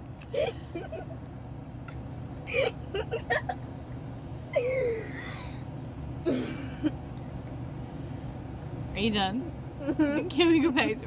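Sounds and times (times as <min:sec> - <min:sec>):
steady low hum: 0:00.0 - 0:11.0
woman laughing: 0:00.3 - 0:01.2, 0:02.5 - 0:03.6, 0:09.8 - 0:10.3.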